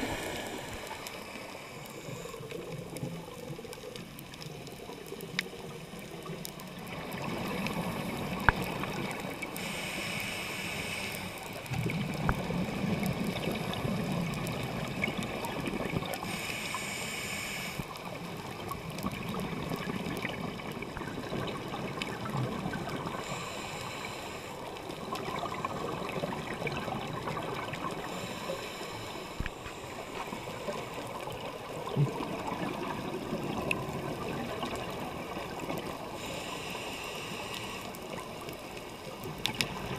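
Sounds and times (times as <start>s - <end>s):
regulator hissing inhale: 0.0s - 2.7s, 9.5s - 11.7s, 16.2s - 18.0s, 23.1s - 24.8s, 28.0s - 30.6s, 36.1s - 38.3s
exhaled air bubbling: 10.8s - 17.1s, 24.6s - 28.2s.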